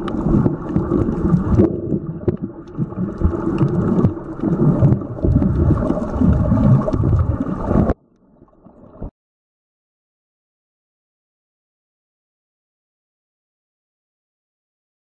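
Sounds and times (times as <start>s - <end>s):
underwater rumbling and sloshing: 0.0s - 9.1s.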